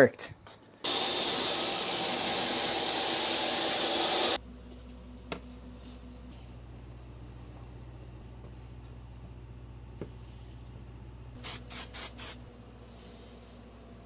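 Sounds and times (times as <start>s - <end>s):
table saw cutting with whine: 0.8s - 4.4s
low hum: 4.4s - 11.4s.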